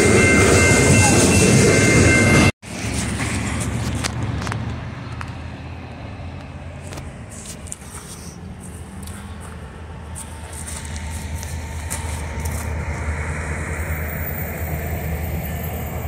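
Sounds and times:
car engine and tyre noise: 1.3 - 16.0
freight train wheels squealing: 11.0 - 16.0.

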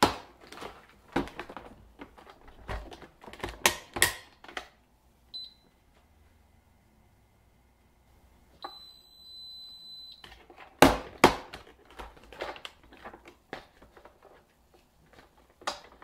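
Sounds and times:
clicks taps and rustles of handling: 0.0 - 4.8, 10.2 - 16.0
high electronic beep: 8.6 - 10.2.

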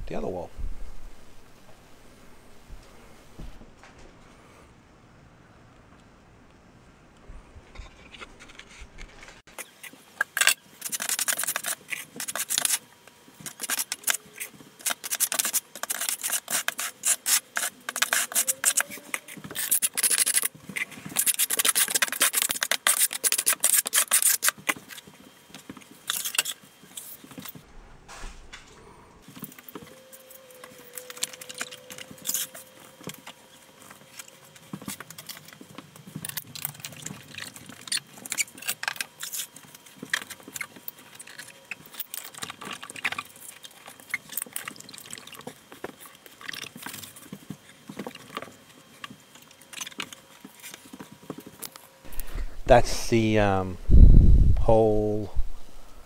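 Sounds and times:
trowel scraping mortar on wall: 13.5 - 20.5, 21.1 - 24.5.

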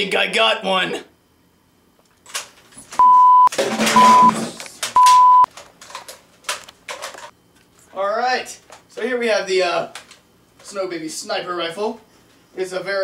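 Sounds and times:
censor bleeps: 3.0 - 4.3, 5.0 - 5.5.

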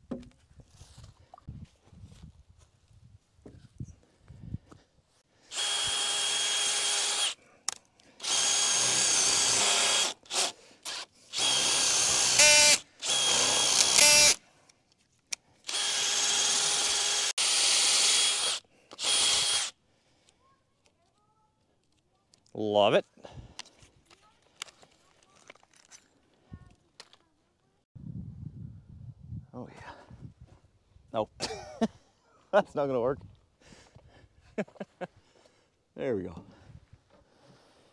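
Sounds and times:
power drill driving screws: 5.5 - 7.4, 8.2 - 14.4, 15.7 - 19.7.

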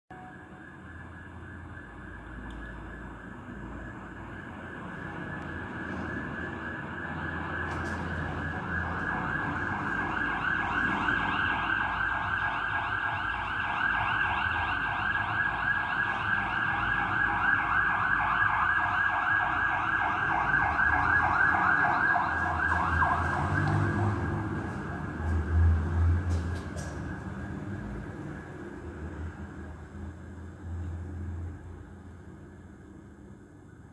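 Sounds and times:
fast two-tone siren: 0.1 - 25.6
heavy truck engines rumbling: 0.1 - 33.9.

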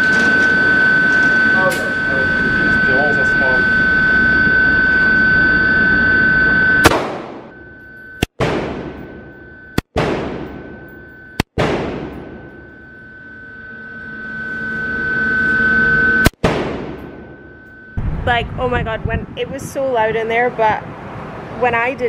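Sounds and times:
steady hum: 0.0 - 21.0
gunshots with echo: 6.8 - 7.5, 8.4 - 9.2, 9.8 - 10.8, 11.6 - 12.4, 16.4 - 17.2.

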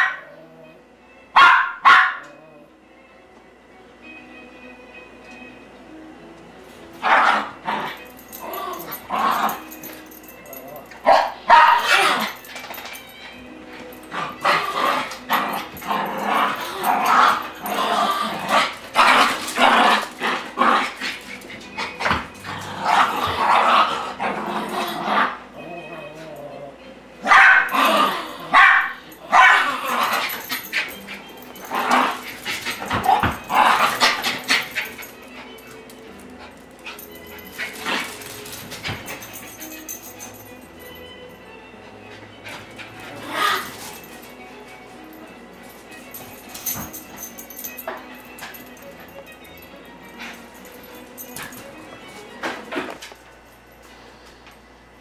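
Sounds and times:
small dogs barking: 0.0 - 0.4, 1.4 - 2.4, 7.0 - 7.6, 11.0 - 12.4, 27.2 - 30.4.

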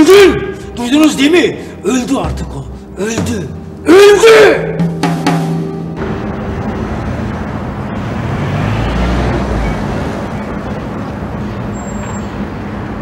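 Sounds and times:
city street traffic: 5.7 - 13.0.

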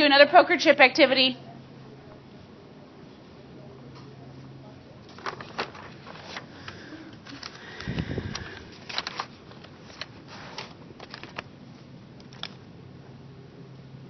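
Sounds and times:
low murmur of voices: 1.4 - 8.7.

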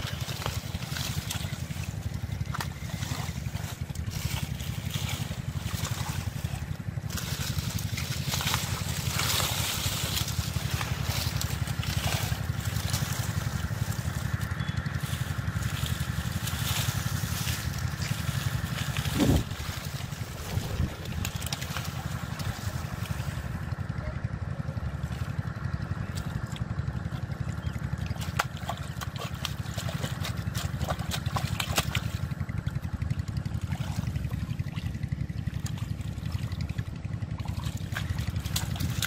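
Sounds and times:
plant stems rustling: 0.0 - 23.6
muddy water splashing: 0.0 - 39.0
steady low rumble: 0.0 - 39.0.

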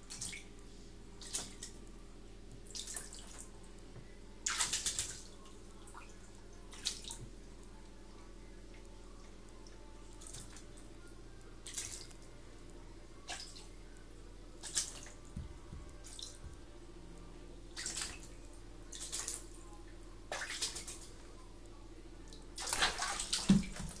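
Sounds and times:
cat splashing in bathwater: 4.5 - 5.2, 17.8 - 18.3, 20.3 - 21.0, 22.6 - 24.0.

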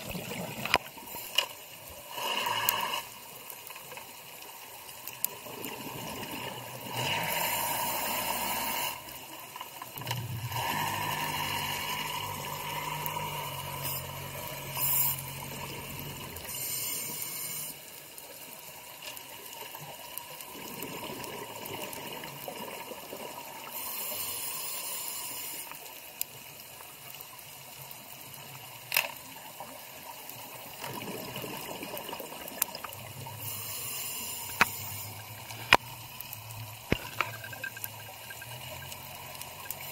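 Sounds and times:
exhaled bubbles rushing: 0.0 - 0.8, 30.8 - 33.2
regulator hissing inhalations: 16.5 - 17.8, 23.7 - 25.8, 33.4 - 35.2.

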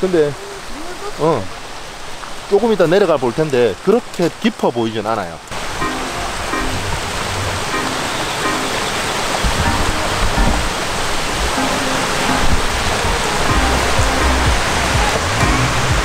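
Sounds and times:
stream rushing: 0.0 - 16.0
background music with low beat: 9.6 - 10.7, 13.4 - 16.0.

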